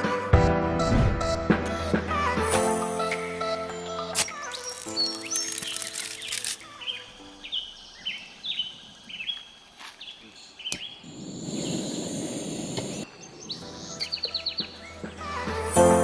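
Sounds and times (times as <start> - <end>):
bird chirping: 3.7 - 15.4.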